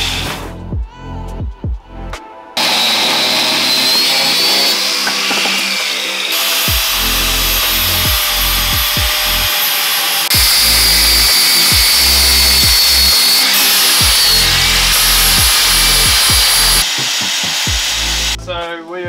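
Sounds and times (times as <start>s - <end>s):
music with thumping beat: 0.0s - 2.3s, 5.0s - 5.7s, 6.4s - 9.5s, 10.3s - 18.8s
angle grinder grinding steel: 2.6s - 18.4s.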